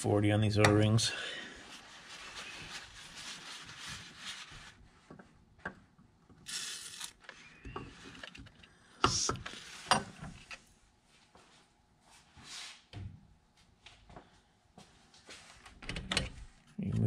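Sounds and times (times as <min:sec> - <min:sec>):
paper towel rubbing on metal: 0:01.6 - 0:05.0.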